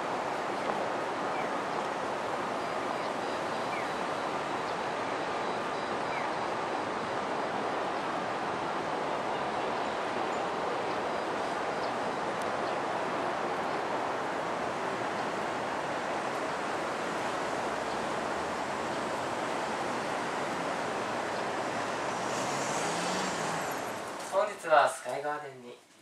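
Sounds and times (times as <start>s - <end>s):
city street background noise: 0.0s - 26.0s.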